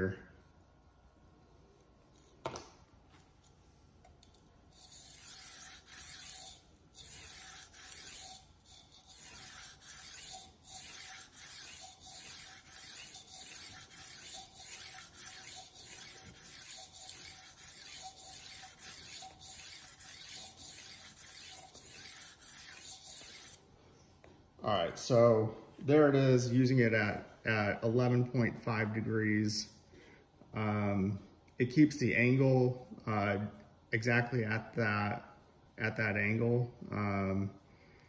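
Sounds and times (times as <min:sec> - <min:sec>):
knife scraping on whetstone: 0:04.7 - 0:23.6.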